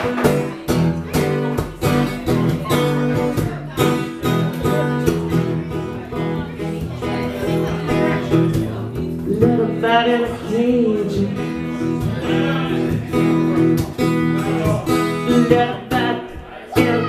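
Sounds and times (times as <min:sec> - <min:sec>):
acoustic guitar strummed and picked: 0:00.0 - 0:17.0
woman singing: 0:07.0 - 0:12.2, 0:15.2 - 0:17.0.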